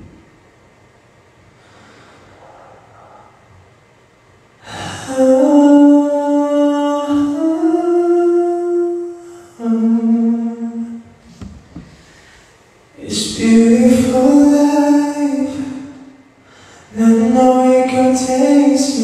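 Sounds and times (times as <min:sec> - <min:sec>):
man singing a cappella: 0:04.7 - 0:11.0, 0:13.0 - 0:16.2, 0:16.8 - 0:19.0.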